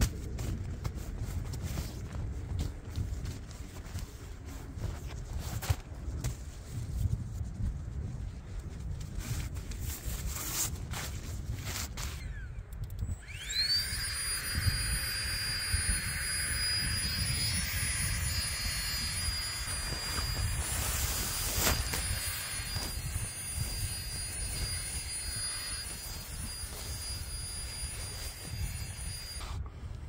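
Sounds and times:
wind buffeting microphone: 0:00.0 - 0:30.0
high-pitched whine: 0:12.0 - 0:29.8.

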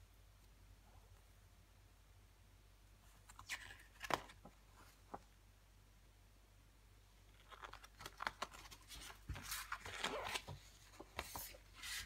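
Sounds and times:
paper rustling: 0:07.3 - 0:12.0.

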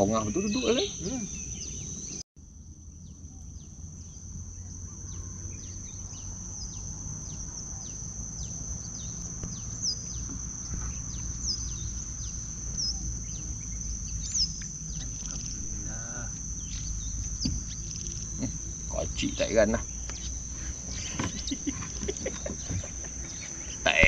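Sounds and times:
birds chirping: 0:00.0 - 0:02.2, 0:03.0 - 0:24.0
high-pitched insect drone: 0:00.0 - 0:24.0
low rumble: 0:11.7 - 0:19.2.

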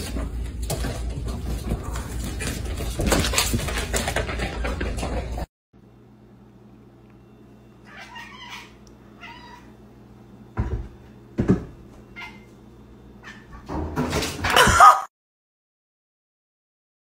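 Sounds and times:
cat meowing: 0:07.8 - 0:09.7.

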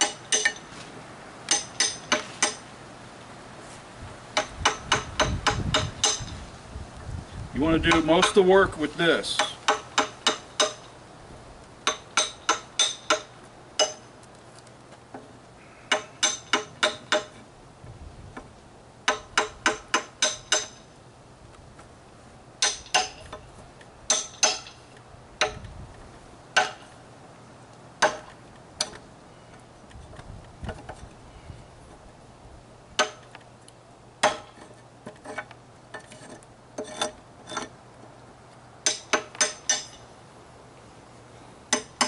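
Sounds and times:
hammer tapping wood chisel: 0:07.9 - 0:08.4, 0:15.9 - 0:17.4.

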